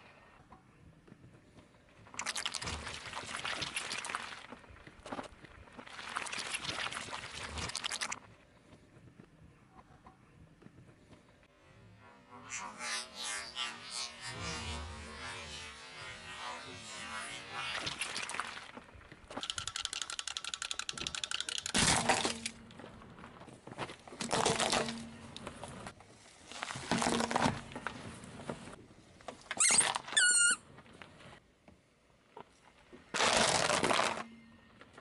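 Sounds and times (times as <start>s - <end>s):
fast clicking rattle: 19.3s - 21.9s
tyre crunching small objects: 21.6s - 25.4s, 33.1s - 34.3s
brief high squeak: 29.6s - 30.6s.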